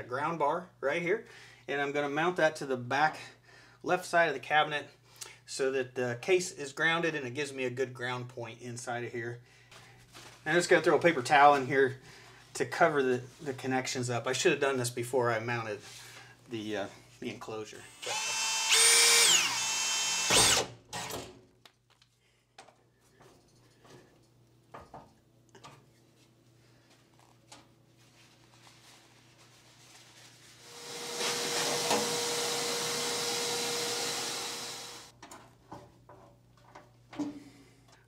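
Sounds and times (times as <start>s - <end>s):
cordless drill whining: 17.9s - 21.1s, 30.6s - 35.1s.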